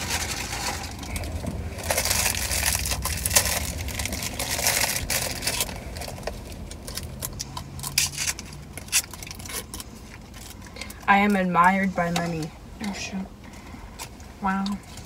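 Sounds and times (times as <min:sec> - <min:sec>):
plastic wrappers tearing and crinkling: 0:00.0 - 0:11.4.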